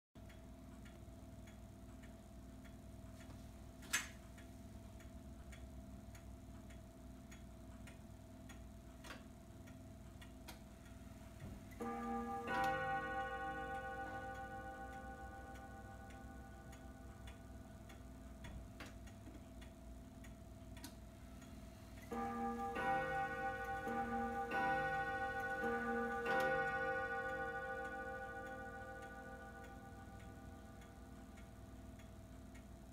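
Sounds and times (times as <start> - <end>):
pendulum ticking: 4.3 - 32.9
clock gongs striking: 11.7 - 18.0, 22.1 - 31.8.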